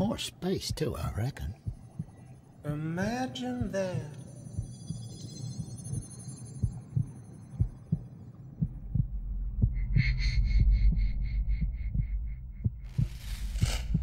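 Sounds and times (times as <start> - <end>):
steady low hum: 0.0 - 14.0
heartbeat double thumps: 0.6 - 2.8, 3.6 - 14.0
low rumble: 3.9 - 14.0.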